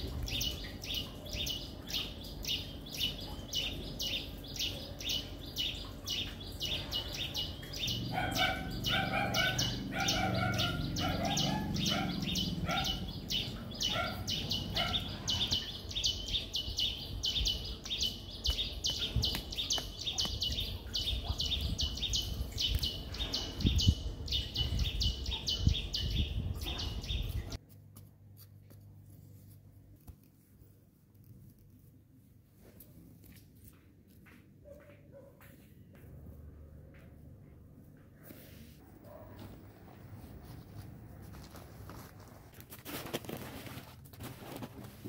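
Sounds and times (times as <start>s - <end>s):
birds chirping: 0.0s - 27.6s.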